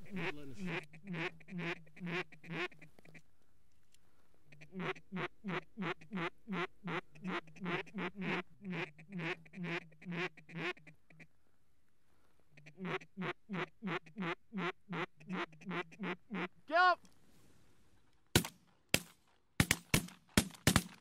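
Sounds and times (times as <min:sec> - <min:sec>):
duck quacking: 0:00.0 - 0:03.2, 0:04.5 - 0:11.3, 0:12.5 - 0:16.6.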